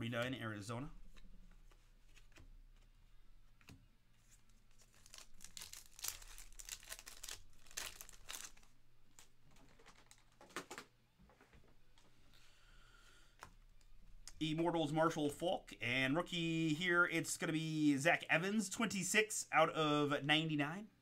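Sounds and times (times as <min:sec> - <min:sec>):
foil wrapper crinkling and tearing: 0:04.7 - 0:10.4.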